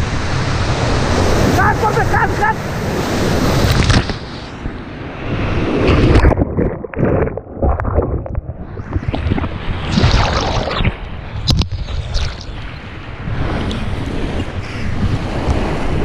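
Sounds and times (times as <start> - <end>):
water washing over microphone: 5.8 - 16.0.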